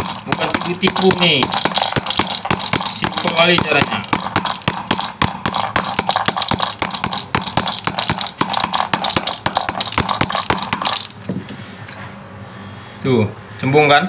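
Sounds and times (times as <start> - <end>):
mallet tapping on brass: 0.0 - 11.2.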